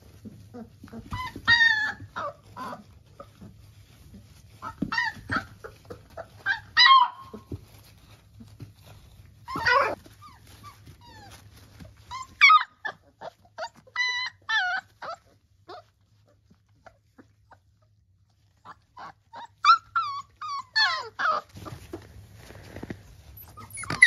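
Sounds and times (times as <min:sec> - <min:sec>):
puppies yelping and squeaking: 0:00.0 - 0:24.0.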